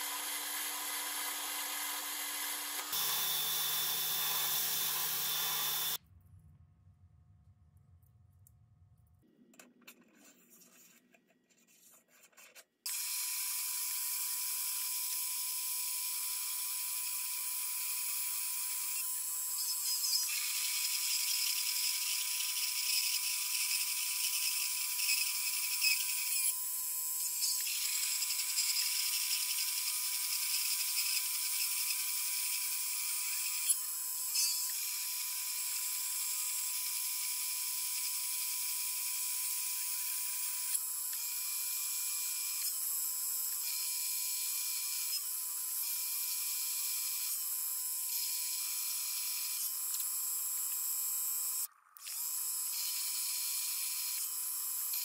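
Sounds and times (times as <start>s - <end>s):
lathe tool cutting metal: 0.0s - 6.0s
metal lathe whining: 0.0s - 6.0s.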